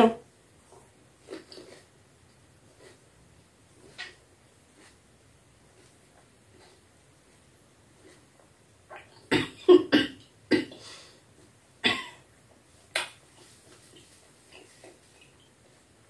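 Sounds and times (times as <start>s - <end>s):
woman coughing: 9.3s - 10.8s, 11.8s - 12.2s.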